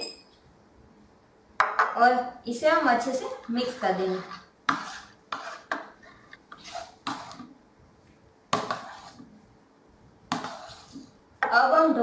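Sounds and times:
spoon stirring batter in plastic bowl: 2.7 - 9.6, 10.2 - 11.7.

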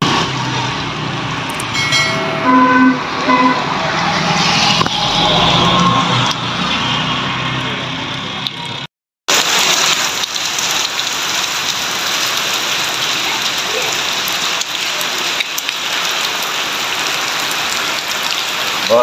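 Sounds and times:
heavy rain pouring: 0.0 - 19.0
raindrops ticking nearby: 8.4 - 19.0.

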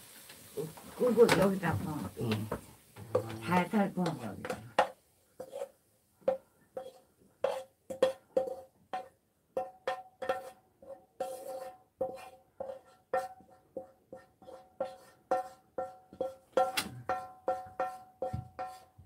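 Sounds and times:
frying pan knocking with metallic ring: 7.9 - 10.4, 15.8 - 19.0.

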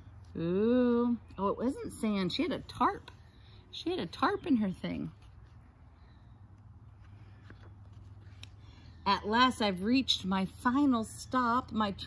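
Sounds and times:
low steady hum: 0.0 - 12.0
book page turning: 5.0 - 5.7, 6.5 - 8.7.

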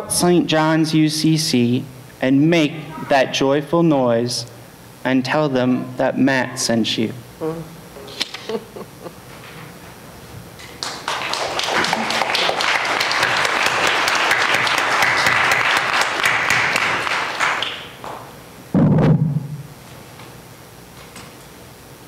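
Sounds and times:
crowd applauding: 10.6 - 18.0
loud low thump: 18.7 - 19.8.

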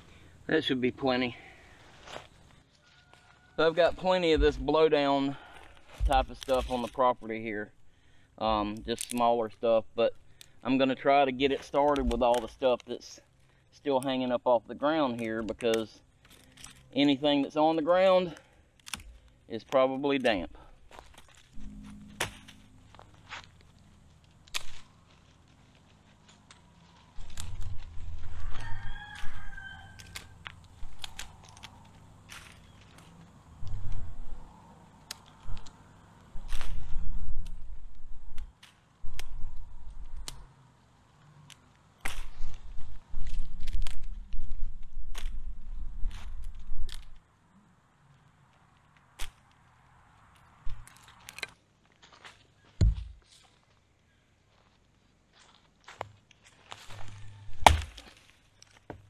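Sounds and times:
dry leaves and twigs crackling: 0.0 - 59.0
rooster crowing: 2.8 - 3.7, 28.2 - 30.4, 56.9 - 57.6
low rumble: 21.6 - 25.3
dull thump: 52.8 - 53.2.

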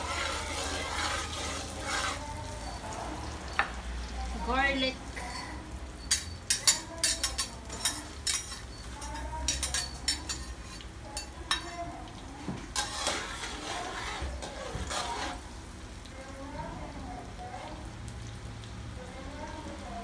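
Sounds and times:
metal ladle clinking and scraping: 0.0 - 2.8, 6.1 - 10.8, 12.8 - 15.4
garlic sizzling in oil: 0.0 - 20.0.

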